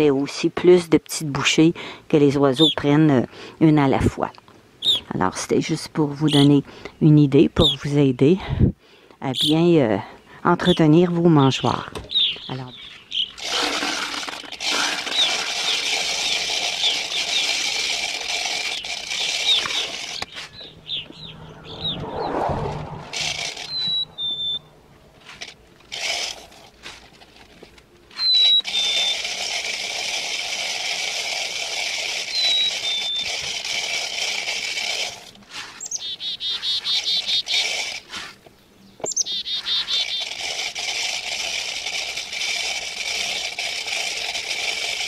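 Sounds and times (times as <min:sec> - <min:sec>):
seeds pouring into a plastic feeder: 0:13.4 - 0:20.2
bird chirping two-note whistles: 0:23.7 - 0:24.7.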